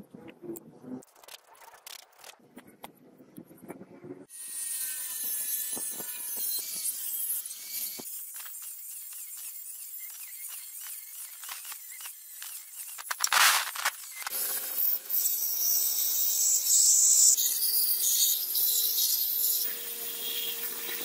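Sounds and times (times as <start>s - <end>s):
angle grinder cutting steel: 4.3s - 21.0s
belt grinder grinding steel: 4.3s - 21.0s.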